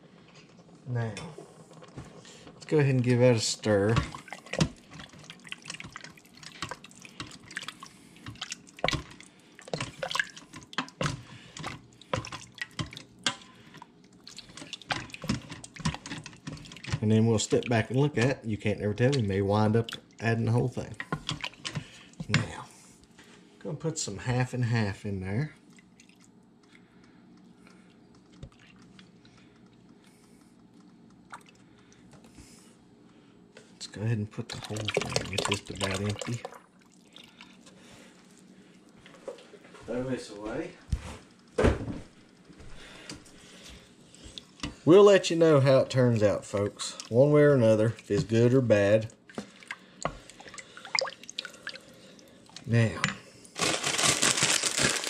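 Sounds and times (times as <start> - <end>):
liquid sloshing: 1.5 - 23.4, 25.6 - 30.3, 31.2 - 32.1, 34.4 - 39.6, 42.8 - 53.0, 53.6 - 55.0
spoon stirring thick soup: 1.8 - 20.2.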